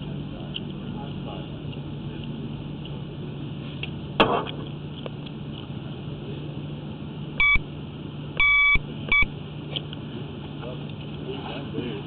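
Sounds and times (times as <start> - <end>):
steady low hum: 0.0 - 12.0
short electronic beep: 7.4 - 7.6, 8.4 - 9.3.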